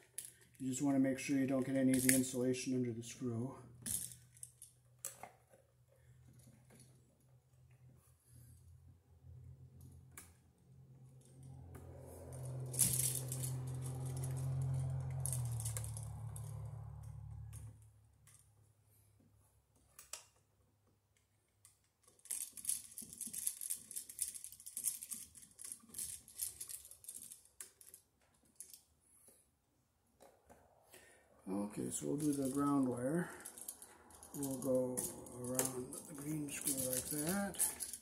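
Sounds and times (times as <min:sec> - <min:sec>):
clicks and scrapes of wiring: 0:31.9 - 0:38.0.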